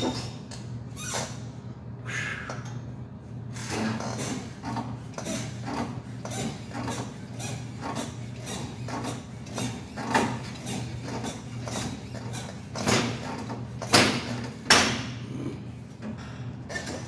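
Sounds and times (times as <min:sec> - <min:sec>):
exercise machine clicks and creaks: 0:00.0 - 0:01.5, 0:03.6 - 0:15.1, 0:16.0 - 0:17.0
exercise machine clanks: 0:03.6 - 0:15.2.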